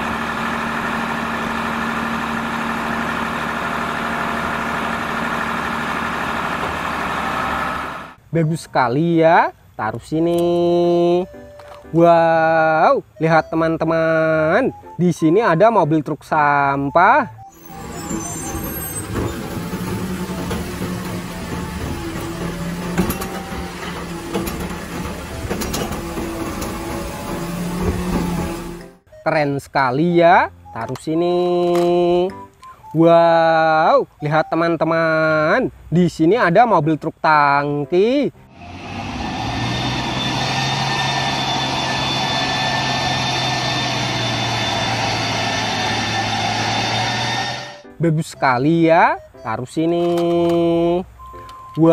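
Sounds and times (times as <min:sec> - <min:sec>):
hydraulic lift arm hum: 0:00.0 - 0:08.2, 0:17.5 - 0:29.0, 0:38.5 - 0:47.9
garbage truck running: 0:00.0 - 0:08.3, 0:17.3 - 0:29.2, 0:38.4 - 0:48.0
sharp clunks: 0:18.8 - 0:29.0.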